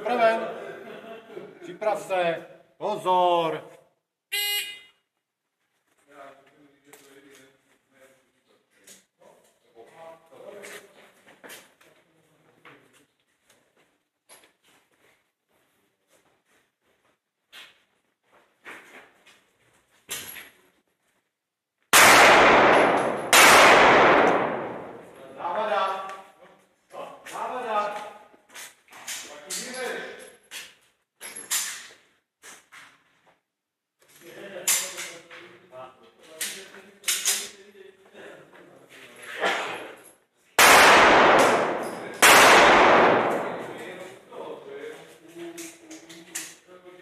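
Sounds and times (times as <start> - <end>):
pistol shots echoing indoors: 21.9 - 25.3, 40.6 - 44.0
gunshots ringing in concrete hall: 22.0 - 25.7, 40.6 - 44.1.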